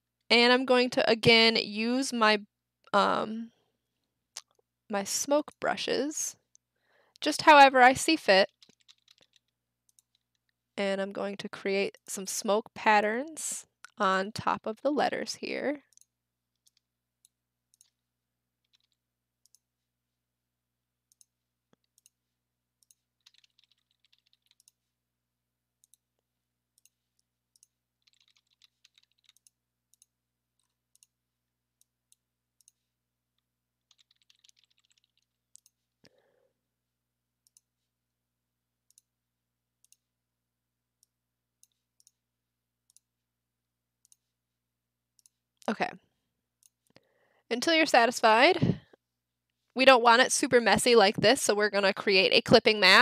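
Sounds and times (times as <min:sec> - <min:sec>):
computer mouse clicks: 0:08.5 - 0:10.6, 0:15.9 - 0:18.0, 0:18.6 - 0:19.7, 0:21.1 - 0:22.2, 0:22.8 - 0:24.8, 0:25.8 - 0:26.0, 0:26.8 - 0:31.2, 0:31.8 - 0:32.8, 0:33.8 - 0:35.8, 0:37.4 - 0:37.7, 0:38.9 - 0:39.1, 0:39.8 - 0:40.1, 0:41.0 - 0:42.2, 0:42.9 - 0:43.1, 0:44.0 - 0:44.3, 0:45.2 - 0:45.4.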